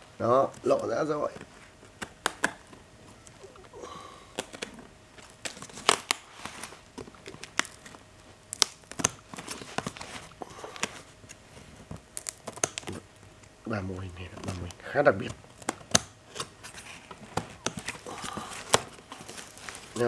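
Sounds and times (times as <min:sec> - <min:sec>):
tape crinkling: 0:00.4 - 0:20.0
scissors cutting bubble wrap: 0:04.3 - 0:11.1, 0:12.0 - 0:13.0, 0:14.3 - 0:20.0.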